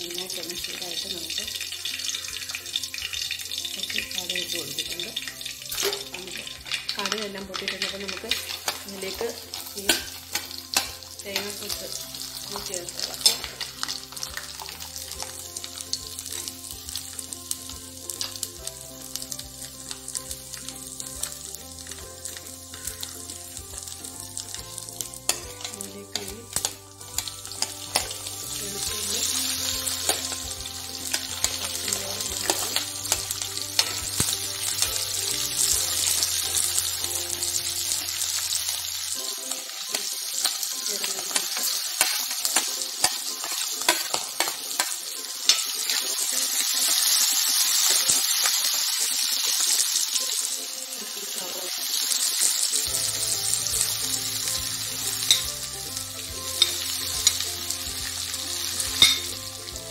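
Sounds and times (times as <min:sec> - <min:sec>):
faint background music: 0:00.0 - 0:59.9
food sizzling in oil: 0:00.0 - 0:59.9
spatula scraping pan: 0:22.3 - 0:36.7, 0:41.0 - 0:48.2.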